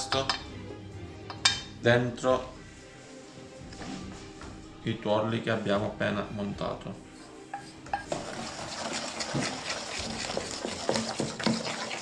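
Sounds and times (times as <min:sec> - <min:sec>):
spoon scraping thick batter: 0:07.2 - 0:12.0.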